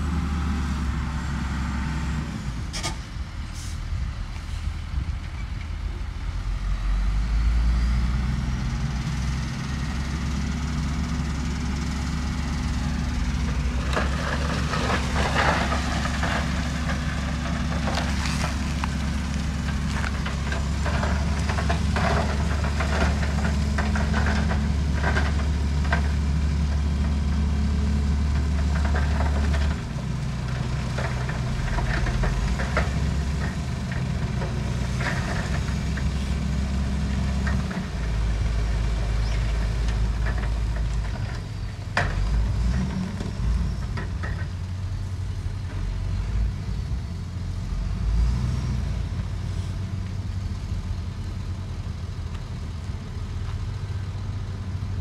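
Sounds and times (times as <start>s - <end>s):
diesel engine running under load: 0.0s - 55.0s
rock clattering and rattling: 13.4s - 26.2s.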